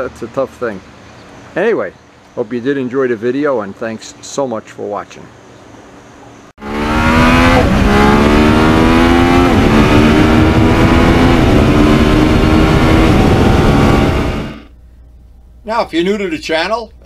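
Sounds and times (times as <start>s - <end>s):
motorcycle engine accelerating: 6.6s - 14.7s.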